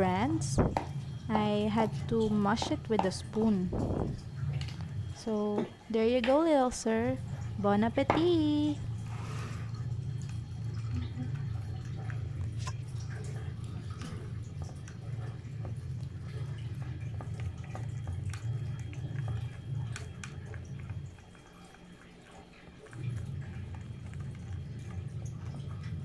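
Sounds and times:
steady low rumble: 0.0s - 5.1s
cat chewing and lapping food: 8.2s - 26.0s.

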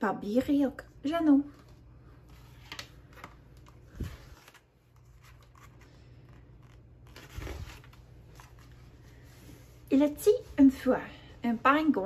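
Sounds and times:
book pages turning: 1.5s - 9.3s.

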